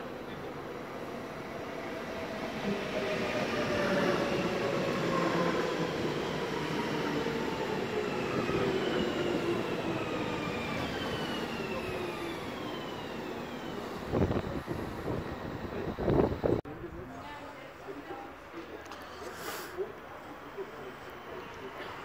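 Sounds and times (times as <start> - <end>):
train traction motor whine: 8.1 - 16.6.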